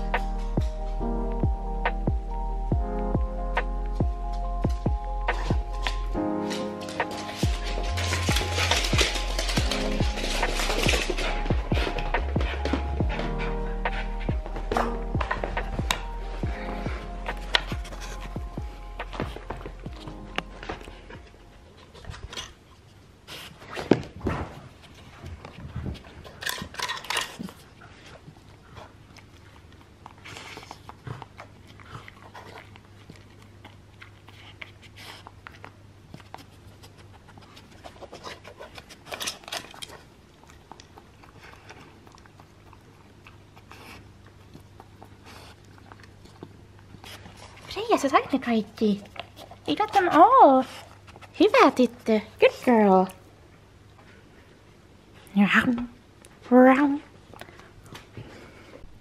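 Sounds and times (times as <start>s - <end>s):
dog sniffing and panting: 3.1s - 24.0s, 24.6s - 52.3s
dog chewing: 3.2s - 23.0s, 24.9s - 52.1s.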